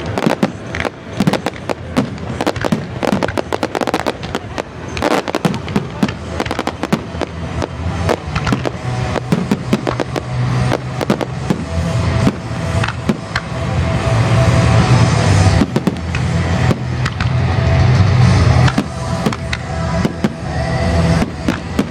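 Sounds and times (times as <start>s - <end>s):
continuous rumble: 0.0s - 21.9s
fireworks bangs and cracks: 0.0s - 21.9s.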